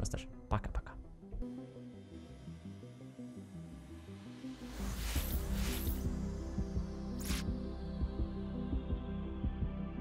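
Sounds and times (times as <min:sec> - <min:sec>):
brief swish: 0:04.9 - 0:06.0, 0:07.2 - 0:07.5.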